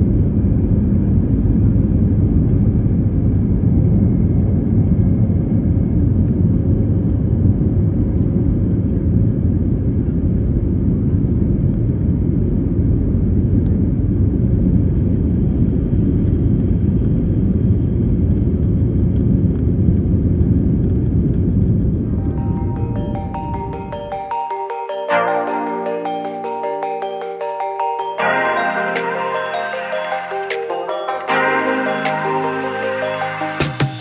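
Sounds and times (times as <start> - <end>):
jet engine roar in cabin: 0.0 - 24.5
music with bell-like notes: 22.1 - 34.0.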